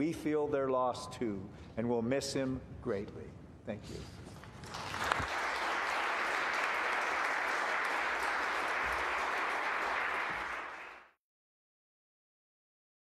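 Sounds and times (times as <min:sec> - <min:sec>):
people applauding: 0:04.6 - 0:11.2.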